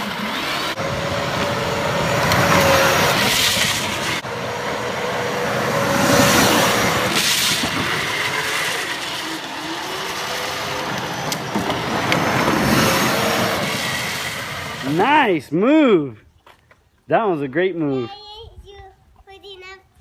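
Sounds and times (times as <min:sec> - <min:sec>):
plastic wheels on asphalt: 0:00.0 - 0:15.2
electric motor whine: 0:00.2 - 0:14.8.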